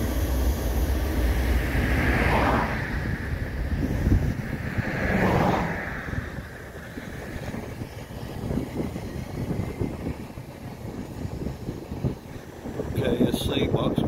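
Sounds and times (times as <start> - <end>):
low rumble: 0.0 - 10.4
car road and wind noise: 0.0 - 14.0.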